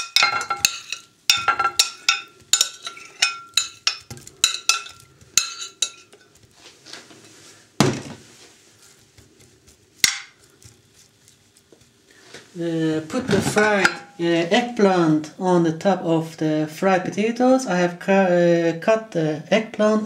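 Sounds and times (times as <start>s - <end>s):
glass bowl clinking on dish: 0.0s - 6.3s, 13.8s - 14.2s.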